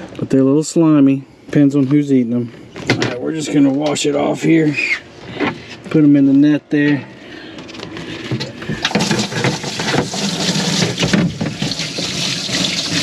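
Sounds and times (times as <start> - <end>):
water splashing: 8.8 - 13.0.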